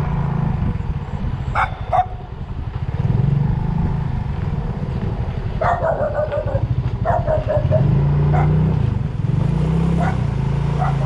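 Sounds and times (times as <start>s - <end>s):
vehicle engine humming: 0.0s - 11.0s
dog barking: 1.6s - 2.2s, 5.6s - 8.6s, 10.0s - 11.0s.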